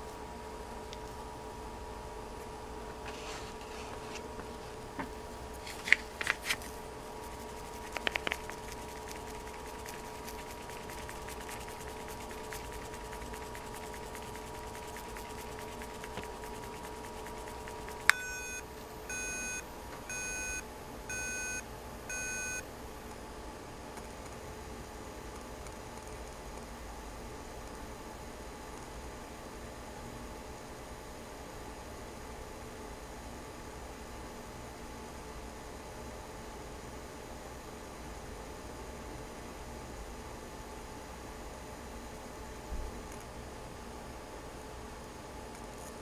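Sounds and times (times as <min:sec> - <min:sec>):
short electronic beeps: 0:18.1 - 0:22.6.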